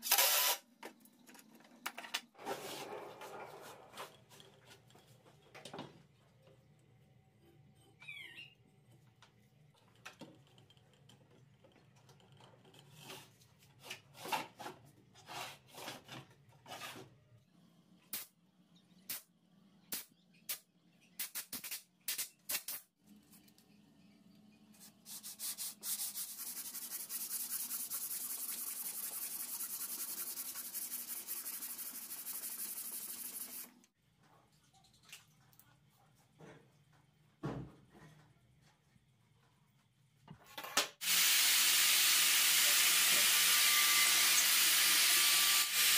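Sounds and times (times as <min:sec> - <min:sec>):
sanding block rubbing plywood: 0:25.1 - 0:33.6.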